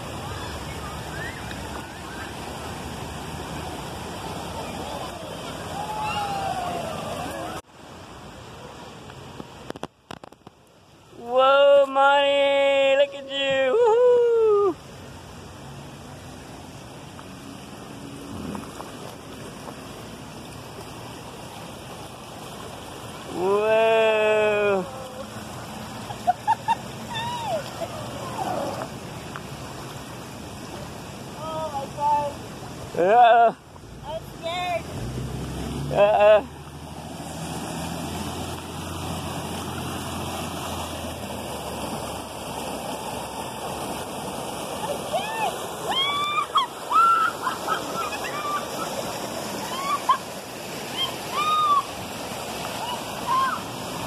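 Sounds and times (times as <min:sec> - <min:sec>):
river water rushing over rocks: 0:00.0 - 0:54.0
person calling out: 0:23.3 - 0:25.3.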